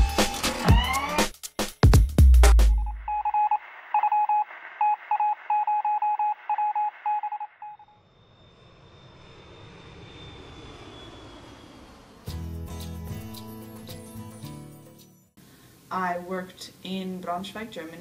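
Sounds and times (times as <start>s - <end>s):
music: 0.0s - 3.1s, 12.3s - 15.4s
morse code radio beeps: 2.9s - 7.8s
propeller plane flying by: 8.0s - 13.4s.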